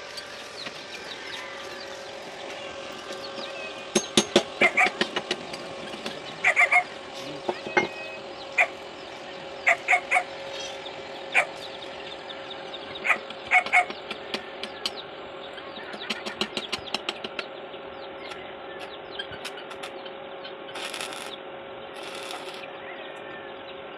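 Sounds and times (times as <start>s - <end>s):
steady hum: 0.0s - 23.9s
arc welding crackling: 20.7s - 22.7s.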